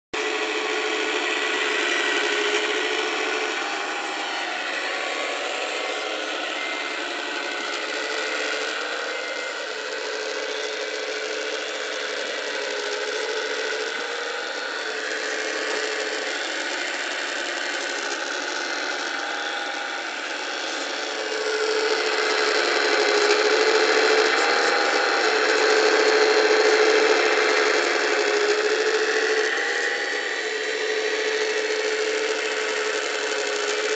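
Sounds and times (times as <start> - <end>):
electric hydraulic pump whining: 0.2 - 33.9.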